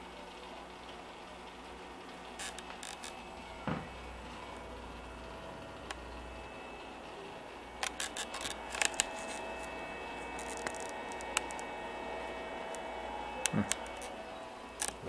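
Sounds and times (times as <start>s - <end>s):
aquarium equipment humming: 0.0s - 15.0s
faint constant tones: 0.0s - 15.0s
camera handling clicks and rustles: 7.8s - 11.6s, 13.6s - 14.1s.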